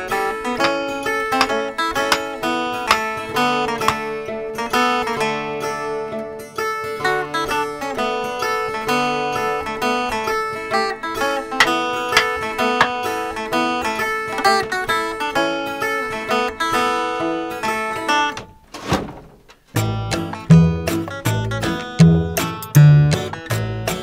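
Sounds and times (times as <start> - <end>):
picked acoustic guitar tune: 0.0 - 18.4, 19.7 - 24.0.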